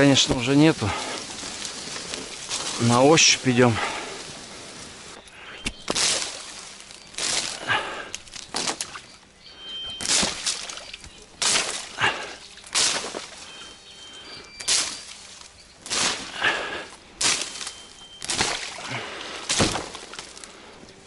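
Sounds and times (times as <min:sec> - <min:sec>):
reeds scraping against kayak: 0:00.0 - 0:05.2.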